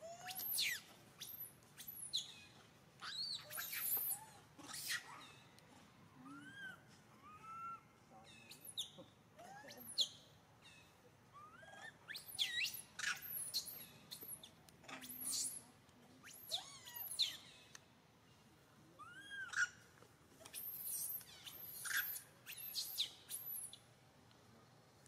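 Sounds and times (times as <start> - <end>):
monkey coos and squeals: 0.0 - 5.5, 6.2 - 17.7, 19.0 - 23.8.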